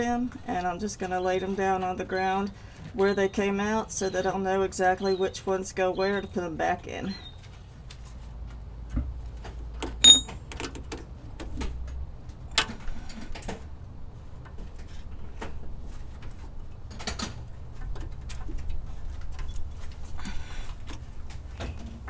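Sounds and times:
sharp metallic clink: 10.0 - 10.4.

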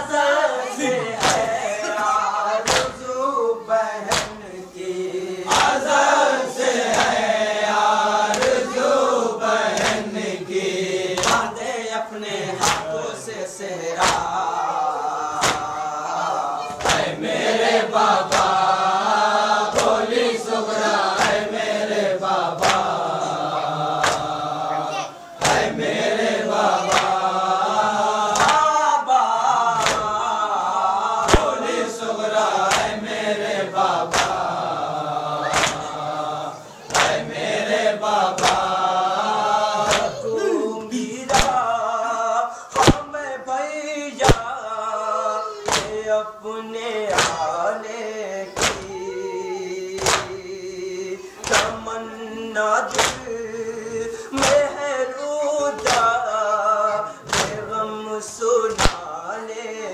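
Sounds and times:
men chanting in unison: 0.0 - 59.9
chest-beating slaps: 1.2 - 1.5, 2.6 - 3.0, 4.1 - 4.4, 5.5 - 5.9, 8.3 - 8.7, 11.2 - 11.5, 12.6 - 12.9, 14.0 - 14.4, 15.4 - 15.7, 16.7 - 17.1, 18.2 - 18.6, 19.7 - 20.0, 21.1 - 21.5, 22.6 - 23.0, 24.0 - 24.3, 25.4 - 26.0, 26.8 - 27.2, 28.3 - 28.7, 29.7 - 30.2, 31.2 - 31.7, 32.6 - 33.0, 34.1 - 34.6, 35.4 - 35.9, 36.8 - 37.5, 38.3 - 38.7, 39.8 - 40.2, 41.3 - 41.6, 42.8 - 43.1, 44.2 - 44.5, 45.6 - 46.0, 47.1 - 47.5, 48.6 - 49.0, 50.0 - 50.4, 51.4 - 51.8, 52.9 - 53.3, 54.4 - 54.7, 55.8 - 56.2, 57.2 - 57.7, 58.7 - 59.1.

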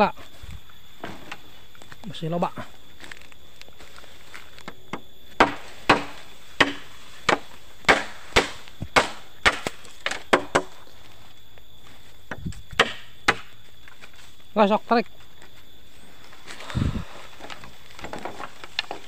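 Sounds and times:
machete chopping bamboo: 5.4 - 10.8, 12.8 - 13.5.

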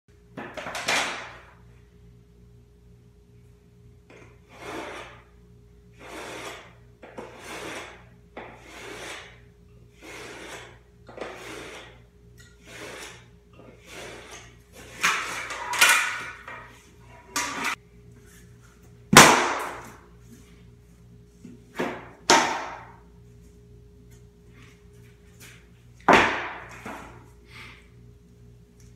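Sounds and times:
utility knife scoring vinyl: 4.5 - 5.2, 6.0 - 16.3.

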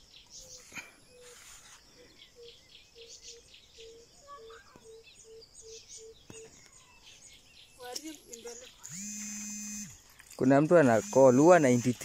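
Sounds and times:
high bird chirps and twitters: 0.2 - 9.2.

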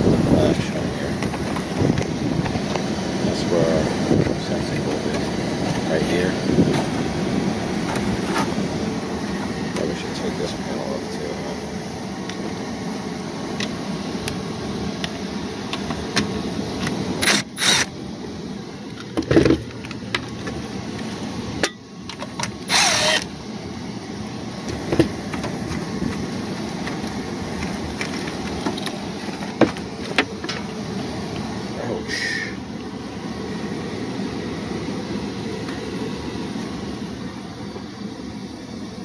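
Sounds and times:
air handler humming: 0.0 - 39.0
cordless driver bursts: 17.2 - 18.0, 22.6 - 23.3.

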